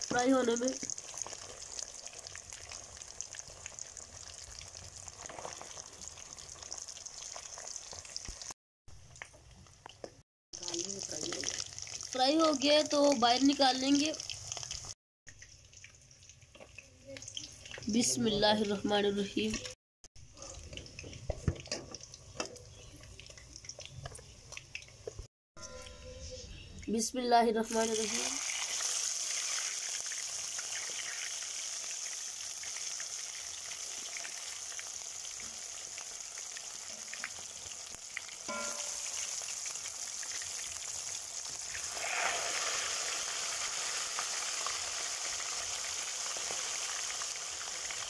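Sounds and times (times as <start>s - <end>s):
chicken deep-frying in oil: 0.0s - 25.3s, 27.0s - 48.0s.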